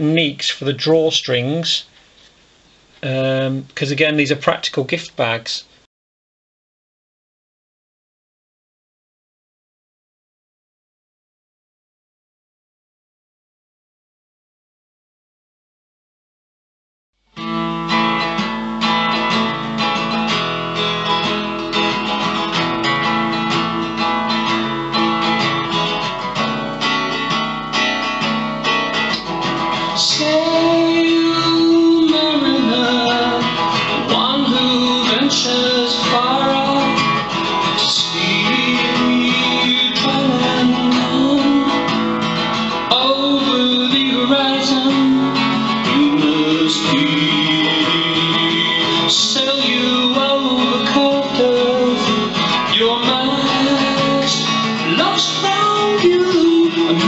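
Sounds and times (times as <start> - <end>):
acoustic guitar strumming: 17.3 - 57.0.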